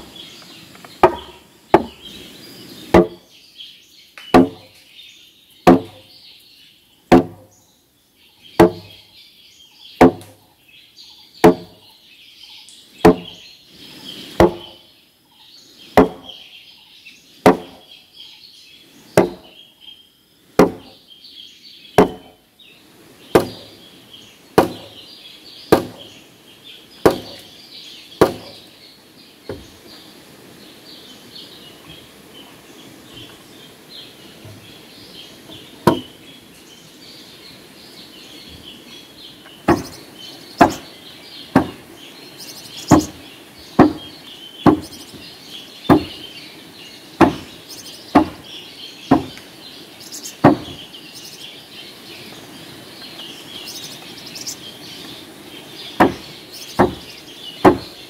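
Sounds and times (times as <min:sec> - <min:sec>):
axe chopping wood: 0:01.0 - 0:02.0, 0:02.9 - 0:03.2, 0:04.2 - 0:04.7, 0:05.7 - 0:06.0, 0:07.1 - 0:07.5, 0:08.6 - 0:09.0, 0:10.0 - 0:10.4, 0:11.4 - 0:11.8, 0:13.0 - 0:13.4, 0:14.4 - 0:14.8, 0:16.0 - 0:16.4, 0:17.4 - 0:17.8, 0:19.2 - 0:19.5, 0:20.6 - 0:21.0, 0:22.0 - 0:22.4, 0:23.3 - 0:23.8, 0:24.6 - 0:25.0, 0:25.7 - 0:26.1, 0:27.0 - 0:27.5, 0:28.2 - 0:28.6, 0:35.8 - 0:36.1, 0:39.7 - 0:40.0, 0:40.6 - 0:40.8, 0:41.5 - 0:41.9, 0:42.9 - 0:43.2, 0:43.8 - 0:45.0, 0:45.9 - 0:46.2, 0:47.2 - 0:47.5, 0:48.1 - 0:48.5, 0:49.1 - 0:49.4, 0:50.4 - 0:50.8, 0:56.0 - 0:57.9
high chirping: 0:38.1 - 0:52.3.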